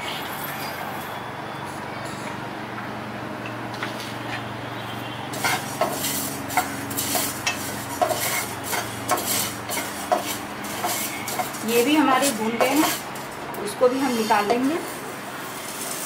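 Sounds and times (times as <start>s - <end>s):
seeds scraping and rattling in pan: 5.3s - 16.0s.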